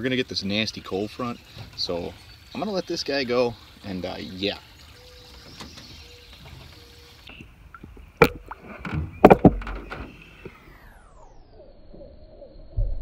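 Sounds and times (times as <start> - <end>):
knocks and thuds on boat: 7.4 - 10.6.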